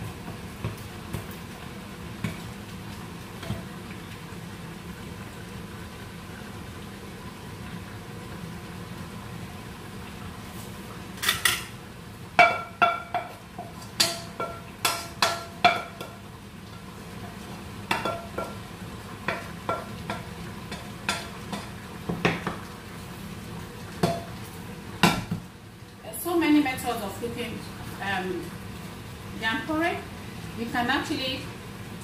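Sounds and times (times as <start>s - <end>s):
spatula knocking on a frying pan: 12.4s - 16.2s, 17.8s - 18.6s, 19.2s - 22.6s, 24.0s - 24.3s, 25.0s - 25.5s.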